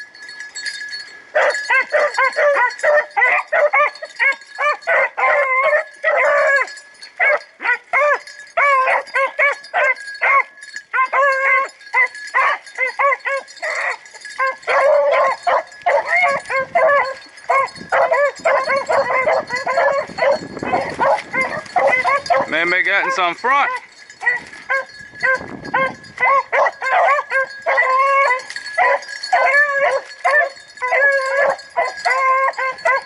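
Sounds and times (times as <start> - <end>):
faint steady high tone: 0.0 - 33.0
hounds barking and baying: 0.0 - 33.0.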